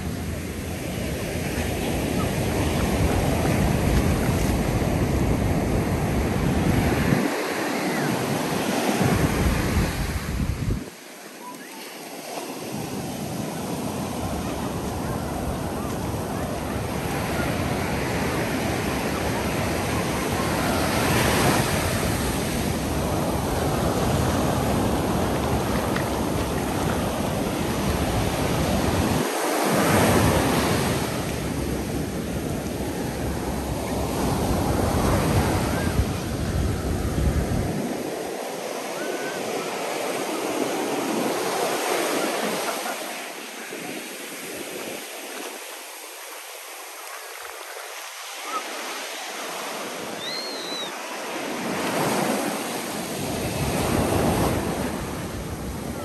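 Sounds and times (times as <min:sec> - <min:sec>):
wind rumble on microphone: 0:00.0 - 0:07.3, 0:08.4 - 0:11.0, 0:14.2 - 0:29.2, 0:29.8 - 0:38.2
surf breaking on beach: 0:00.0 - 0:56.0.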